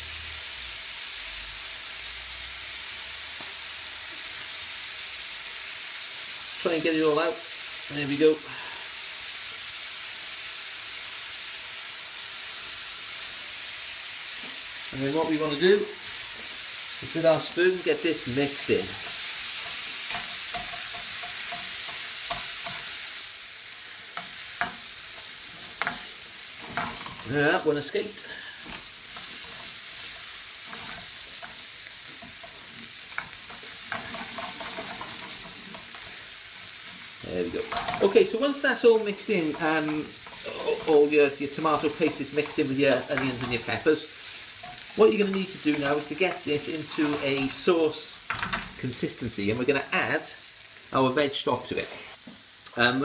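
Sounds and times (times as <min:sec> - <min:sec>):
vegetables sizzling in a pan: 0:00.0 - 0:53.0
wooden spoon knocking and scraping pan: 0:18.8 - 0:23.0, 0:24.2 - 0:27.3, 0:28.6 - 0:36.1, 0:36.8 - 0:38.3, 0:39.2 - 0:43.8.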